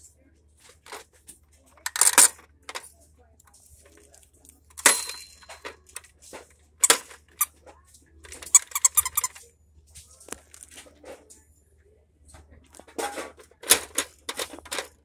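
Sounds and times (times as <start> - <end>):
plastic toy clicks and snaps: 1.8 - 2.9.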